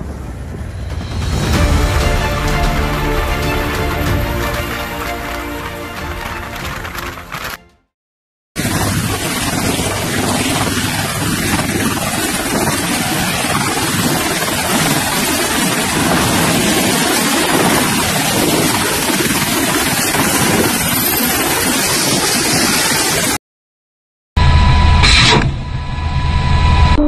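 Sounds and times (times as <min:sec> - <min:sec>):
helicopter rotor and turbines: 0:00.0 - 0:06.1, 0:08.6 - 0:23.4
wind on microphone: 0:08.6 - 0:23.2.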